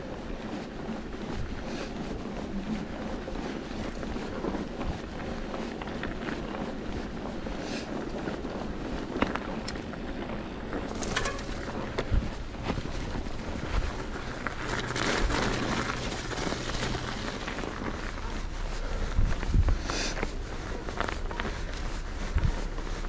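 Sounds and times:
bike tyre and drivetrain rumble: 0:00.0 - 0:23.0
wind on microphone: 0:00.0 - 0:23.0
bike knocks and rattles: 0:10.7 - 0:18.4.

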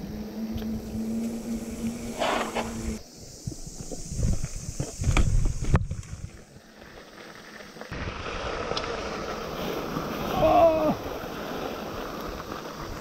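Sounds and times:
wind rushing on microphone: 0:00.0 - 0:06.4
bike tyre noise on trail: 0:00.0 - 0:13.0.

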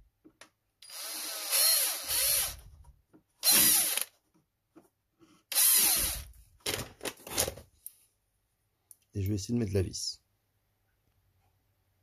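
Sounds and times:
electric drill drilling plastic: 0:00.8 - 0:02.6, 0:03.4 - 0:04.1, 0:05.5 - 0:06.3.

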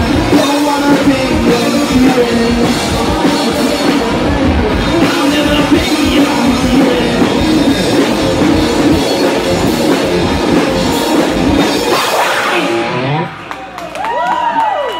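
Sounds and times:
distorted electric guitars: 0:00.0 - 0:13.8
drum kit: 0:00.0 - 0:14.5.

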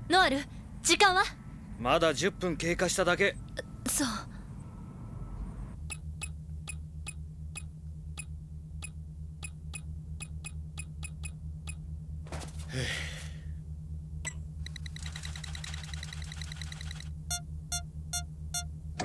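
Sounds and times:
low pulsing hum: 0:00.0 - 0:19.0
rapid beeps: 0:05.9 - 0:11.8, 0:14.6 - 0:18.7.

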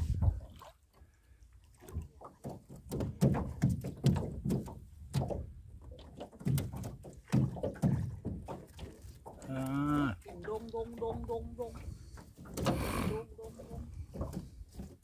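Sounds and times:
net knocking against boat hull: 0:02.4 - 0:05.5, 0:06.3 - 0:08.8.

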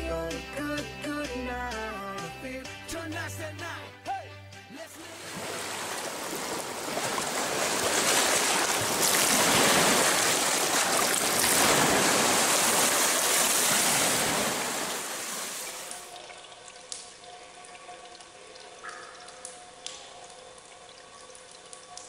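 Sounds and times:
waves splashing on shore: 0:05.1 - 0:16.0.

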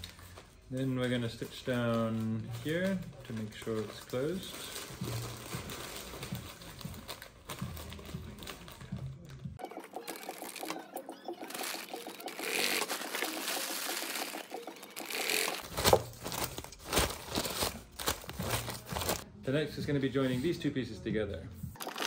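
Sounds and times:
sewing machine stitching: 0:09.7 - 0:15.7
fabric rustling: 0:11.4 - 0:19.2.

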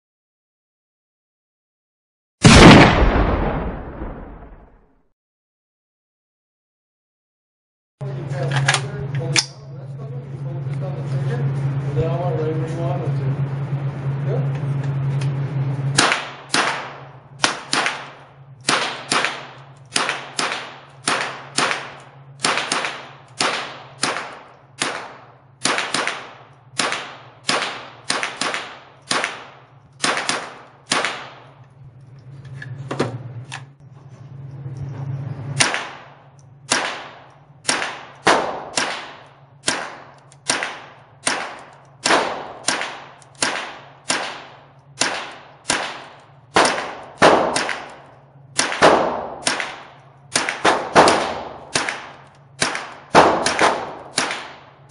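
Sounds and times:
rifle shots echoing indoors: 0:02.4 - 0:04.8, 0:16.0 - 0:31.6, 0:35.6 - 0:54.9.

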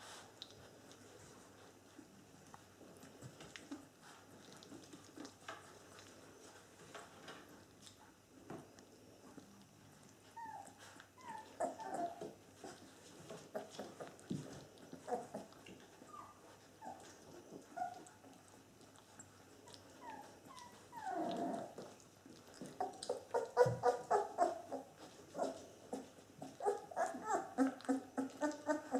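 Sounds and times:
puppies scuffling: 0:00.0 - 0:08.7, 0:09.3 - 0:28.9
puppies whimpering: 0:10.3 - 0:18.1, 0:19.6 - 0:22.0, 0:22.6 - 0:28.9.

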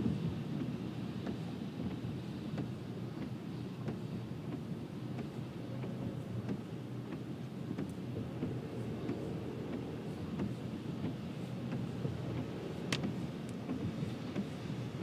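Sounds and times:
raindrops tapping on windshield: 0:00.1 - 0:15.0
tyres and engine rumble: 0:00.1 - 0:15.0.

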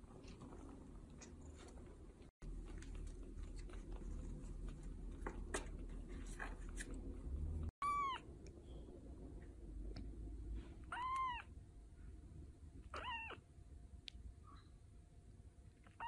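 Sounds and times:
kitten mewing: 0:07.8 - 0:08.2, 0:10.8 - 0:11.5, 0:12.9 - 0:13.4.

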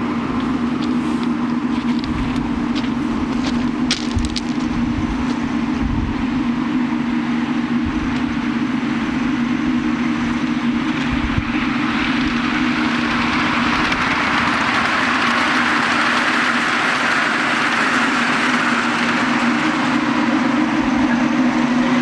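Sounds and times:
miniature locomotive humming: 0:00.0 - 0:22.0
wheel clicks over rail joints: 0:00.3 - 0:05.4.

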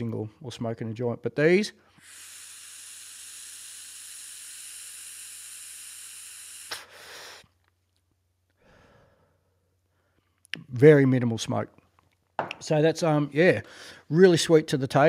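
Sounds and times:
inhale through vaporizer: 0:01.9 - 0:07.6
faint exhale: 0:06.7 - 0:07.5, 0:08.6 - 0:10.3.

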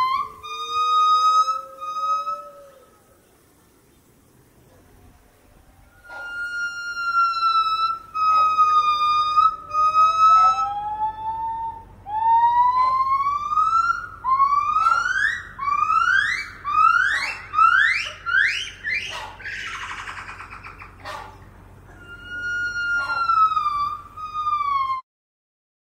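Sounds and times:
gibbons singing whistled hoots: 0:00.0 - 0:03.5, 0:05.8 - 0:25.0.

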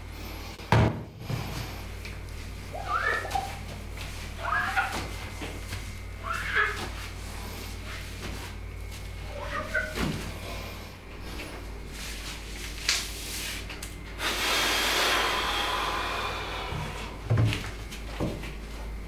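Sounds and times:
sponge squeaking on glass: 0:02.7 - 0:03.7, 0:04.3 - 0:05.2, 0:06.2 - 0:07.0, 0:09.2 - 0:10.1
rushing hiss: 0:14.2 - 0:17.0.

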